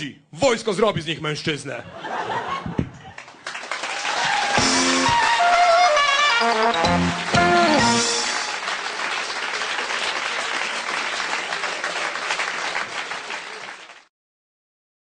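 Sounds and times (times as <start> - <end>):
audience applauding: 3.0 - 14.1.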